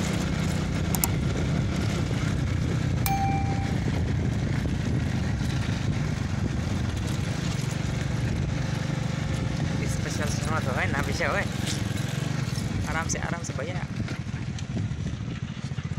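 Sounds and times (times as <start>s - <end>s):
motorcycle engine running: 0.0s - 15.9s
short steady beep: 3.1s - 4.0s.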